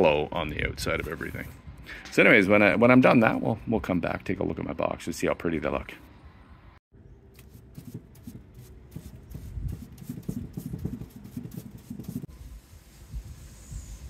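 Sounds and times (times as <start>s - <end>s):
paintbrush strokes on wood: 7.4s - 14.0s.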